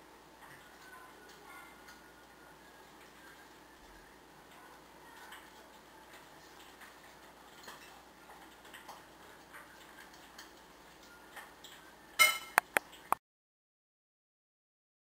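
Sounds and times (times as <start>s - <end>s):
china clinking: 12.2s - 12.7s.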